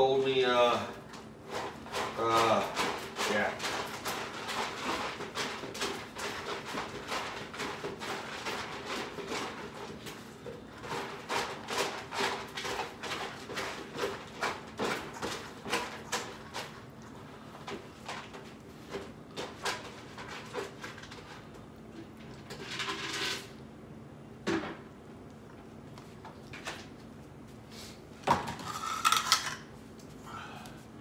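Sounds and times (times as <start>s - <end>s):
cats chewing and licking: 1.0s - 22.4s.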